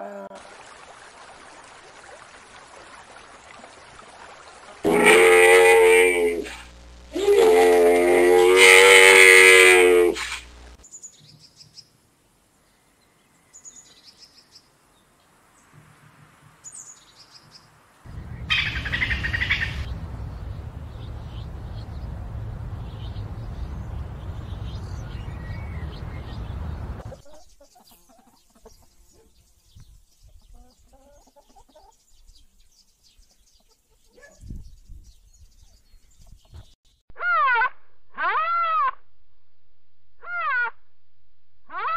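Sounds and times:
loud drawn-out animal call: 0:04.8 - 0:10.5, 0:37.2 - 0:39.0, 0:40.2 - 0:40.8, 0:41.7 - 0:41.9
steady rushing noise: 0:18.1 - 0:27.1.

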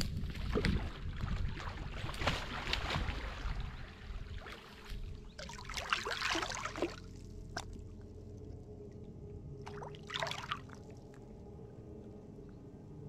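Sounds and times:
fish splashing in water: 0:00.4 - 0:04.6, 0:05.4 - 0:07.7.

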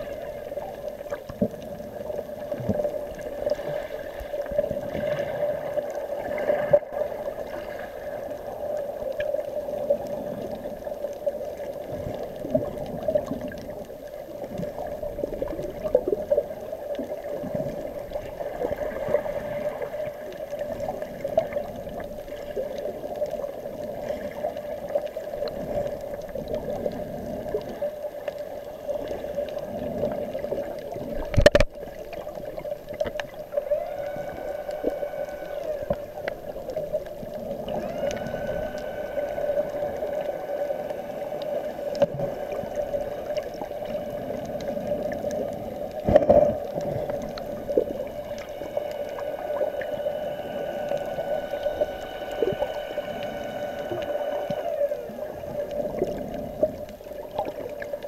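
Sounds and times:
bubbling and gurgling: 0:00.0 - 0:58.0
steady underwater hum: 0:00.0 - 0:58.0
rising tones: 0:33.5 - 0:44.6.

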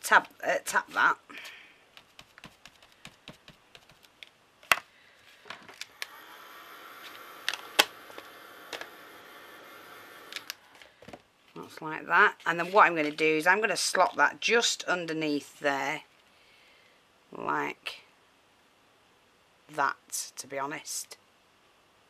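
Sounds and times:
ink applicator tapping card: 0:02.0 - 0:04.2
heat gun fan blowing: 0:05.8 - 0:10.6.

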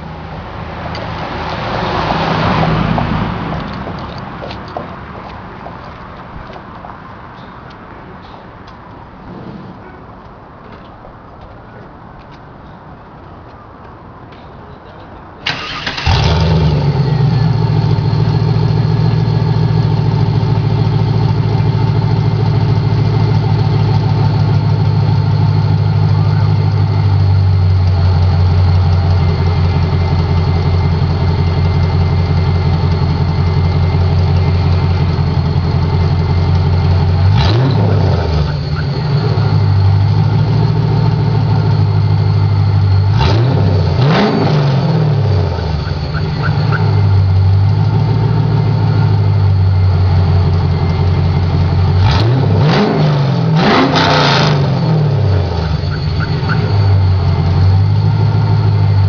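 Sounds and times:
car engine idling: 0:15.4 - 0:59.0
engine revving: 0:15.5 - 0:27.2, 0:27.8 - 0:59.0.

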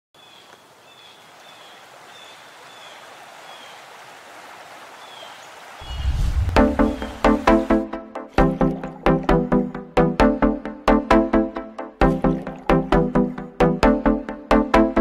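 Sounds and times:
waterfall rushing: 0:01.2 - 0:07.8
deep low rumble: 0:05.8 - 0:07.6.

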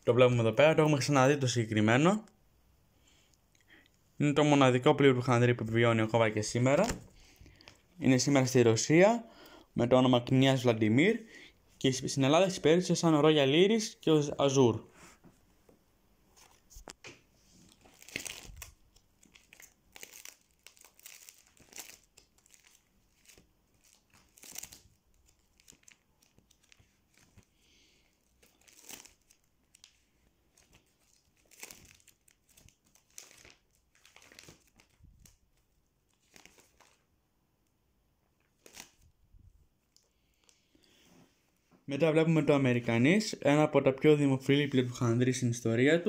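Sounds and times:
plastic sleeves crinkling: 0:05.6 - 0:08.6, 0:16.3 - 0:37.2, 0:38.2 - 0:41.6.

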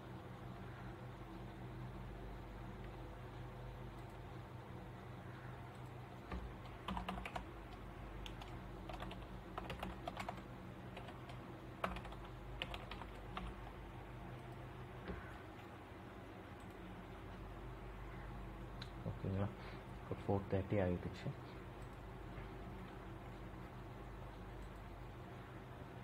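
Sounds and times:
keyboard typing: 0:05.7 - 0:15.4.

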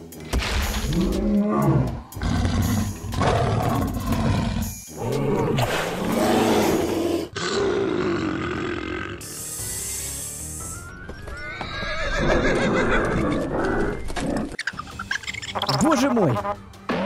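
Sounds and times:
dinosaur roars: 0:00.9 - 0:09.2.

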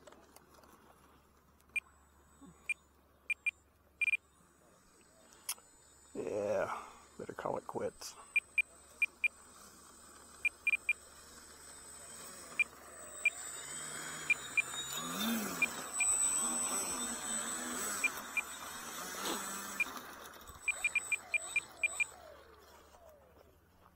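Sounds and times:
wavering whir: 0:00.0 - 0:23.9
short high electronic beeps: 0:02.7 - 0:04.2, 0:20.6 - 0:22.2.

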